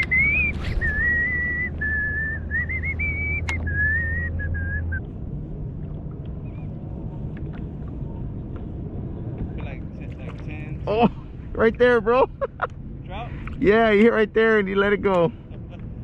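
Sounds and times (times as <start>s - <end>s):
person whistling a tune: 0.0s - 5.0s
steady low hum: 0.0s - 16.0s.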